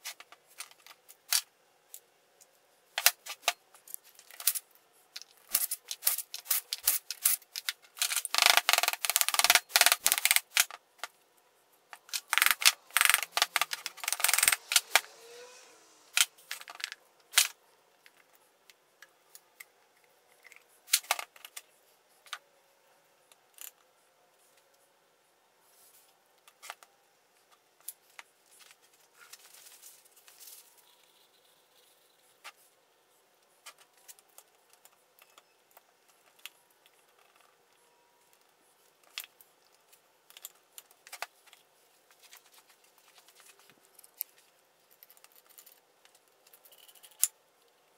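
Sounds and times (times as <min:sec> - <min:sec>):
metal parts clinking: 0:46.4 - 0:47.3.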